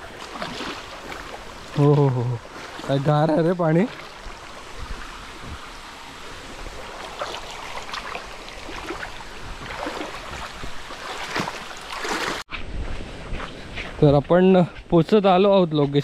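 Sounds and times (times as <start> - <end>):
feet splashing through water: 0.0 - 12.5
stream running over rocks: 0.0 - 12.5.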